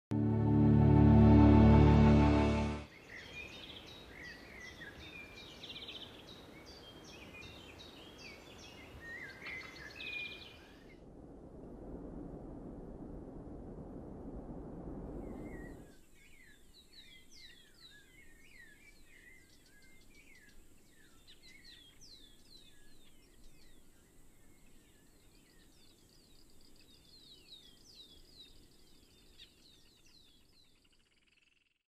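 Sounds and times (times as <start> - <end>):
low rushing noise: 0.1 - 2.9, 11.0 - 15.9.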